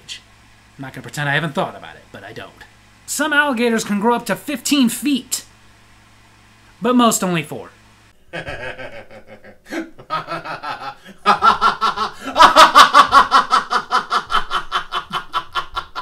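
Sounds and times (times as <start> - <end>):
man laughing hard: 8.3 - 16.0.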